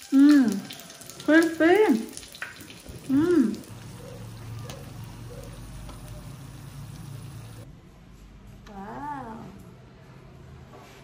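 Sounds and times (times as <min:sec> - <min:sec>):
hot oil sizzling: 0:00.0 - 0:07.6.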